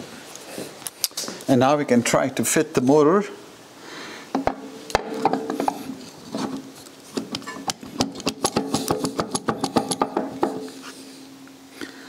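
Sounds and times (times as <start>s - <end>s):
steady low hum: 3.2s - 12.0s
metal clicks and knocks: 6.4s - 10.6s.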